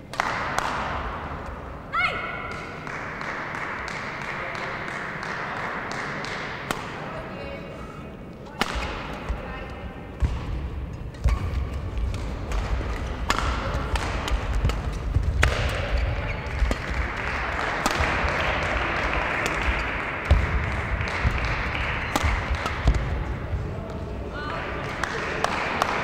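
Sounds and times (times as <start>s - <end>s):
racket striking shuttlecock: 8.5s - 9.4s, 10.2s - 23.6s.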